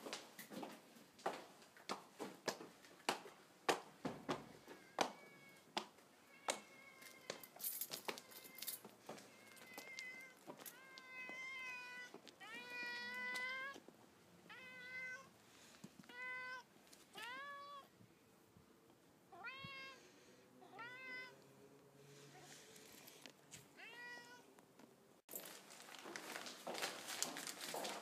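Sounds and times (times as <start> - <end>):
cat meowing: 4.6 - 7.5, 8.1 - 13.8, 14.4 - 15.4, 16.0 - 17.9, 19.3 - 21.4, 23.8 - 24.5.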